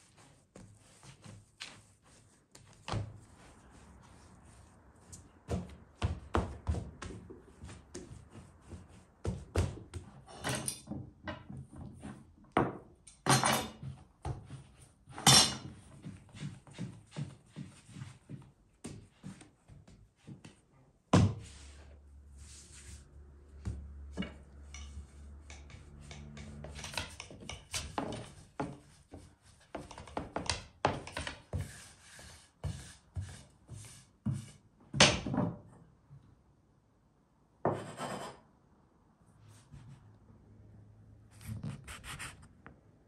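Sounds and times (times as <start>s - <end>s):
rolling pin scraping on board: 23.6s - 34.6s, 37.7s - 38.4s.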